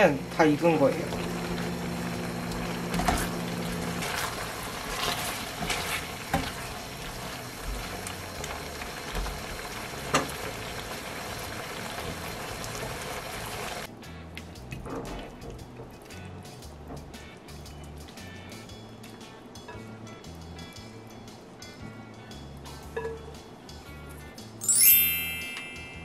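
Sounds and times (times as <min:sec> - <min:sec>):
sauce bubbling and sizzling: 0:00.2 - 0:18.9
spatula stirring: 0:02.8 - 0:09.6.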